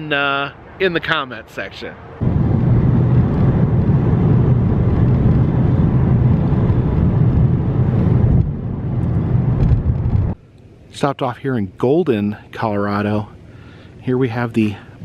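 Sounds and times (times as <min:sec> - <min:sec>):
road and engine rumble in car: 0:02.2 - 0:11.1.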